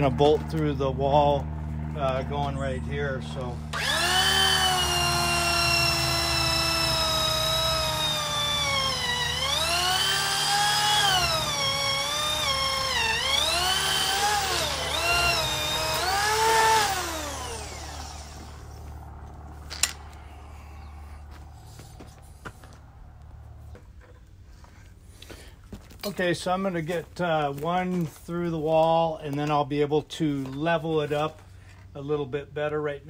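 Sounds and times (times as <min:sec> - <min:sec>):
electric drill boring wood: 0:03.7 - 0:18.9.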